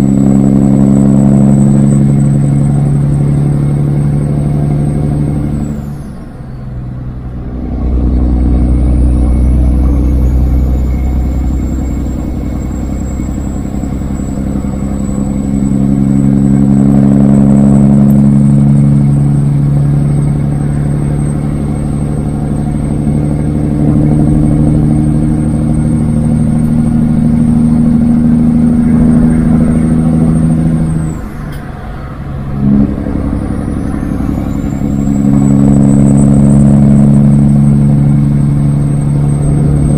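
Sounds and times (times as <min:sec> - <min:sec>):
diesel truck engine pulling: 0:00.0 - 0:39.9
turbo whistle: 0:08.2 - 0:31.6, 0:32.6 - 0:39.9.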